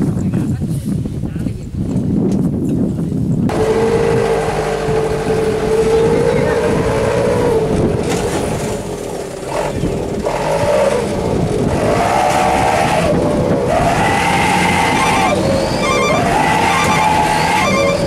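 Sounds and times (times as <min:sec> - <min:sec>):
truck engine revving: 0:03.4 - 0:18.0.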